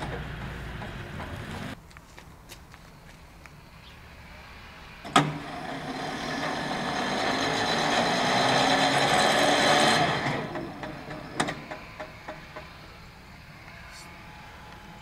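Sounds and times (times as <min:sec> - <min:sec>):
barrier motor whirring: 0:05.0 - 0:13.6.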